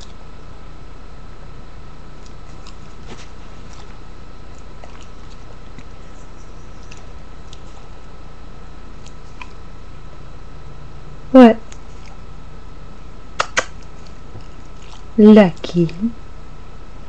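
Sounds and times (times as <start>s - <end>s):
background hum and hiss: 0.0s - 17.0s
soft chewing clicks: 2.2s - 8.2s, 8.9s - 9.7s, 11.6s - 12.2s, 13.4s - 16.0s.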